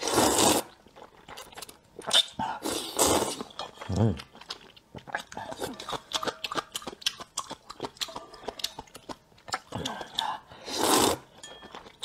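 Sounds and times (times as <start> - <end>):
loud noodle slurp: 0.0 - 0.8, 2.1 - 3.5, 10.6 - 11.3
wet chewing and mouth clicks: 0.4 - 12.0.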